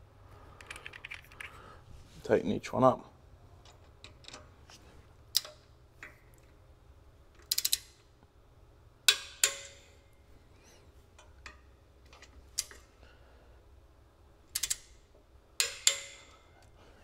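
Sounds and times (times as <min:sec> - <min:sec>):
torque wrench clicks: 0:07.4 - 0:08.0, 0:14.5 - 0:14.9.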